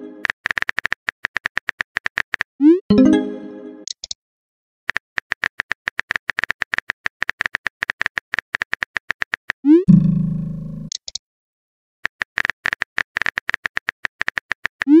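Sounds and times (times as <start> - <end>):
rapid keyboard-like clicks: 0.2 - 2.5, 4.9 - 9.6, 12.0 - 14.9
ringing message tone: 2.9 - 3.8.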